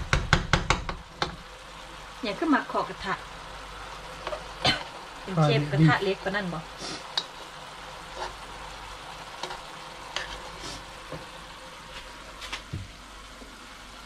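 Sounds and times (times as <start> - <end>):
meat and sauce sizzling in a wok: 0.0 - 14.0
metal spoon scraping a pan: 8.1 - 8.6, 9.4 - 10.8.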